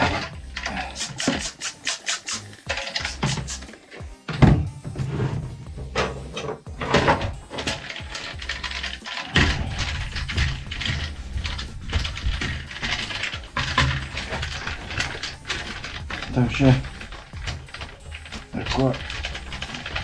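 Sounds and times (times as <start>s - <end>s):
cloth wiping plastic: 0.9s - 3.7s, 9.8s - 20.0s.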